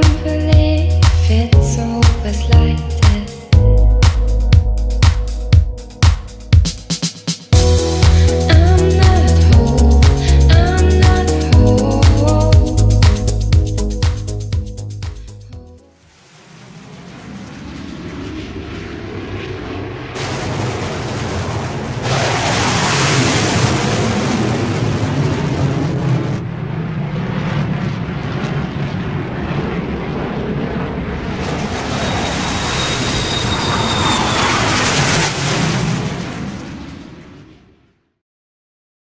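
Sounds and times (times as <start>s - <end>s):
aircraft engine droning overhead: 16.1s - 37.2s
thin whine: 31.4s - 35.4s.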